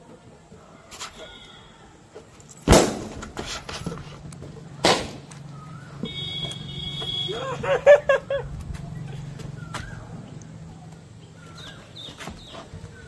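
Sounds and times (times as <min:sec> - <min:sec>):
balloons bursting: 0:02.6 - 0:03.4.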